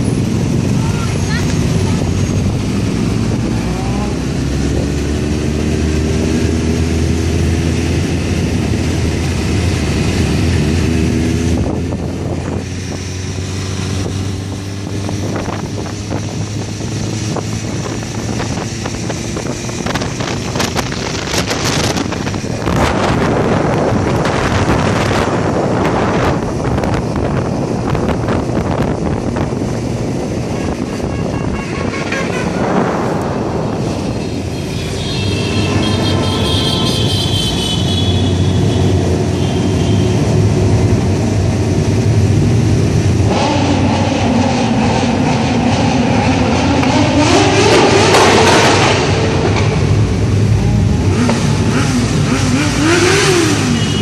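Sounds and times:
motorcycle engine revving: 0:00.0 - 0:54.0
wind on microphone: 0:11.3 - 0:34.7.

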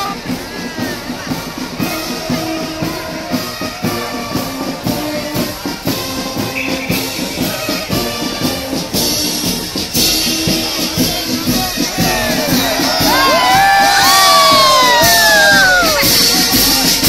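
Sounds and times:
brass melody: 0:00.0 - 0:17.0
marching drums: 0:00.0 - 0:17.0.

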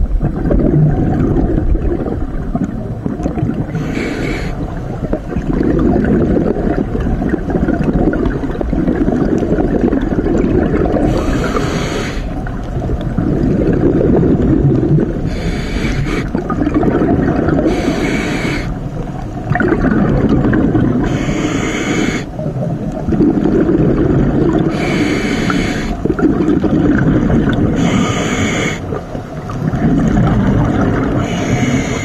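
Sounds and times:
low underwater rumble: 0:00.0 - 0:21.4, 0:22.1 - 0:32.0
diver breathing through regulator: 0:03.6 - 0:04.7, 0:10.9 - 0:12.4, 0:15.2 - 0:16.4, 0:17.5 - 0:18.8, 0:20.9 - 0:22.4, 0:24.6 - 0:26.2, 0:27.7 - 0:29.0, 0:31.0 - 0:32.0.

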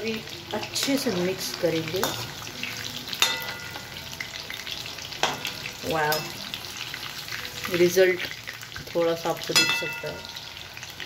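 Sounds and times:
chicken deep-frying in oil: 0:00.0 - 0:11.0
metal spoon clinking against pan: 0:02.0 - 0:02.3, 0:03.2 - 0:04.0, 0:05.2 - 0:06.4, 0:09.5 - 0:10.6.

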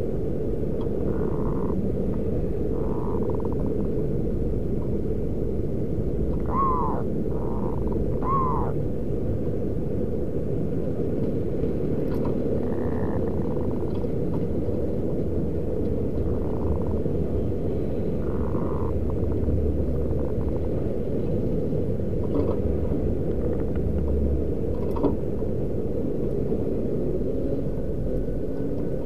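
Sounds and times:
steady low rumble: 0:00.0 - 0:29.0
doves cooing: 0:00.9 - 0:01.9, 0:02.7 - 0:03.9, 0:06.3 - 0:08.8, 0:12.6 - 0:13.8, 0:18.0 - 0:20.7.

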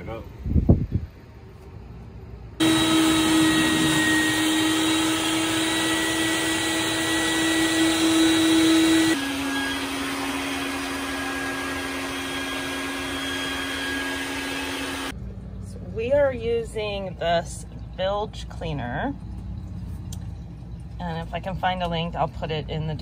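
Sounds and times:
wet-dry vacuum running: 0:02.6 - 0:15.1.

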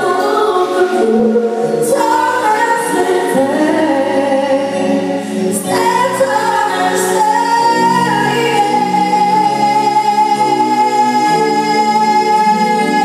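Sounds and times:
woman singing into microphone: 0:00.0 - 0:13.0.

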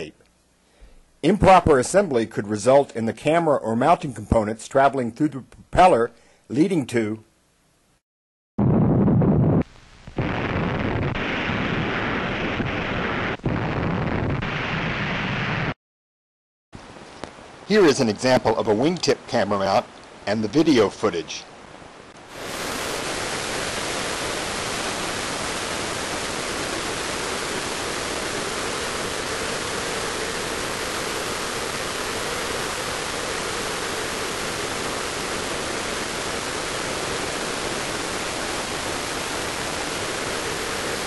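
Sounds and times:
wind noise on microphone: 0:08.6 - 0:15.0
faint hum: 0:08.6 - 0:15.8, 0:16.8 - 0:41.0.

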